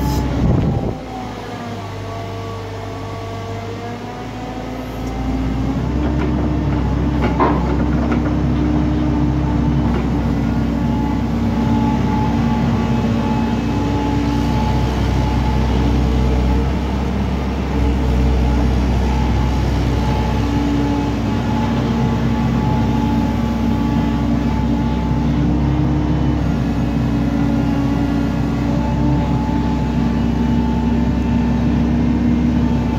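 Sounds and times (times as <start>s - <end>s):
diesel engine at raised revs: 0.0s - 32.9s
hydraulic whine: 0.0s - 32.9s.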